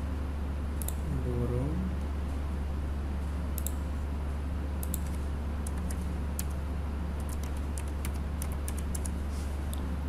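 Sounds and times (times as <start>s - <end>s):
low electrical hum: 0.0s - 10.0s
computer keyboard typing: 4.8s - 6.6s, 7.2s - 9.2s.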